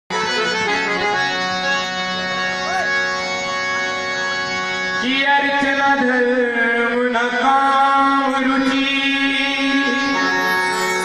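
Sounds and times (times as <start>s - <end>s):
harmonium chords: 0.1s - 11.0s
man singing long note: 5.0s - 11.0s.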